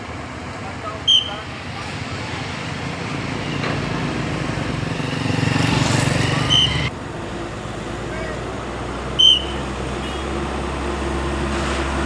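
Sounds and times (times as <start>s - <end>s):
steady road noise: 0.0s - 12.0s
vehicle engine passing: 0.8s - 12.0s
shrill police whistle blast: 1.1s - 1.4s, 6.5s - 6.9s, 9.2s - 9.6s.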